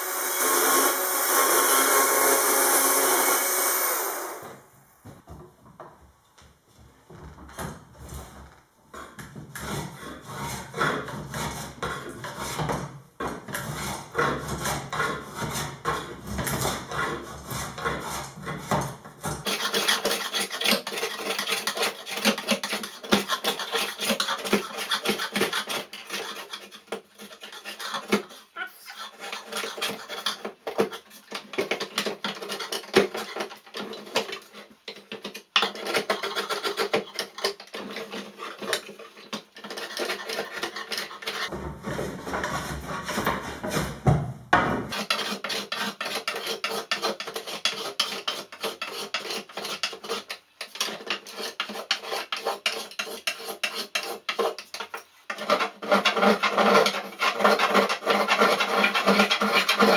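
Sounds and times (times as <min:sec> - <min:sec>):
hand plane scraping wood: 0:09.4 - 0:44.2, 0:44.9 - 0:59.9.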